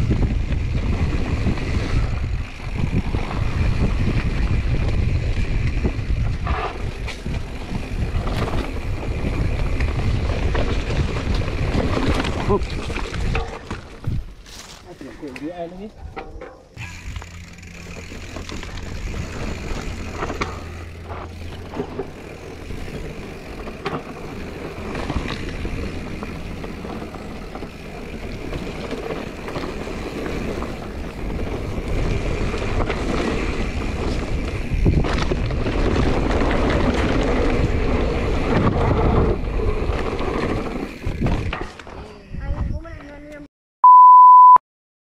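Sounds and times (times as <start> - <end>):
wind on microphone: 0.0 - 14.4, 30.4 - 43.2
tyres rolling over dirt: 0.0 - 14.9, 16.0 - 42.1
bike rattling and clattering: 0.0 - 43.2.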